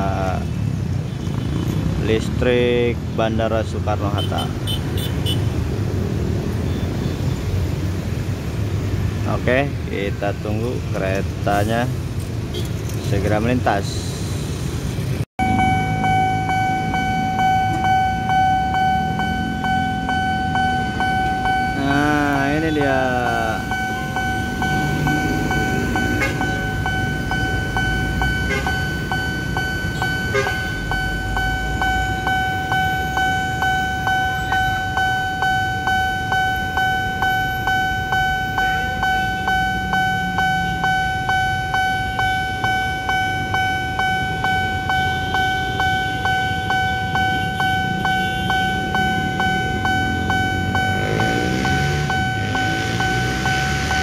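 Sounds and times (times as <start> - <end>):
road traffic rumble: 0.0 - 54.0
railroad crossing alarm ringing: 15.4 - 54.0.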